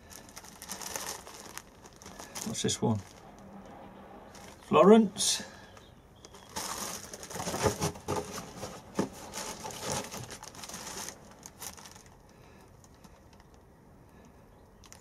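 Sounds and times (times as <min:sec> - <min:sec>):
plastic bag crinkling: 0:00.0 - 0:03.5, 0:04.3 - 0:04.8, 0:05.6 - 0:13.6.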